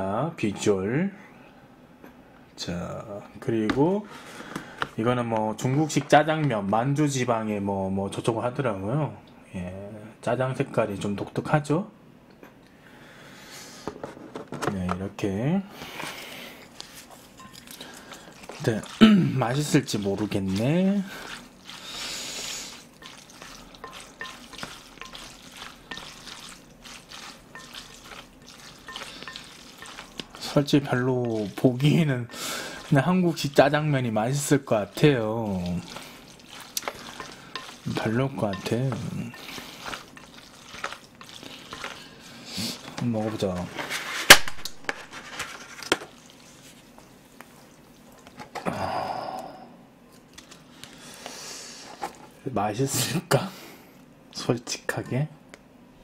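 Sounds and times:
sticky noodles squelching: 0:16.8 - 0:43.8, 0:46.0 - 0:48.4
chopsticks clinking on glass: 0:23.0 - 0:30.6, 0:36.5 - 0:42.0.

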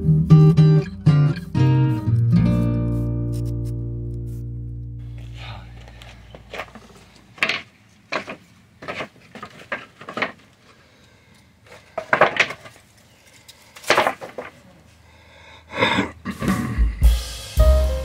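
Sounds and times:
wooden boards scraping clatter: 0:06.4 - 0:10.8, 0:11.7 - 0:13.0, 0:13.7 - 0:14.6
wooden boards knocking on concrete: 0:07.4 - 0:10.4, 0:12.0 - 0:12.8, 0:13.8 - 0:14.6.

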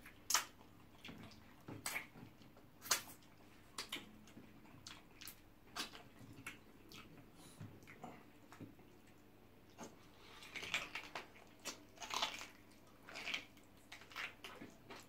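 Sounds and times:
wet lip smacks: 0:02.8 - 0:03.2.

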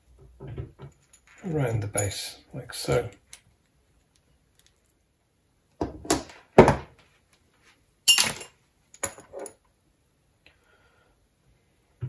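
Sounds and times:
tools knocking on wooden worktop: 0:05.8 - 0:06.9.

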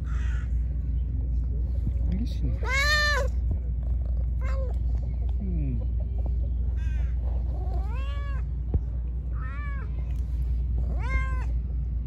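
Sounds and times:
cat meowing: 0:02.6 - 0:03.3, 0:07.7 - 0:08.4, 0:10.9 - 0:11.5.

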